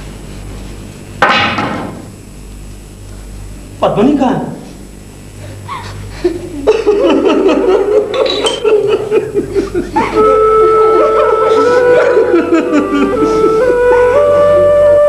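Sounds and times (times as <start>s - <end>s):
person sobbing and wailing: 8.8s - 15.0s
flute long held notes: 9.9s - 15.0s.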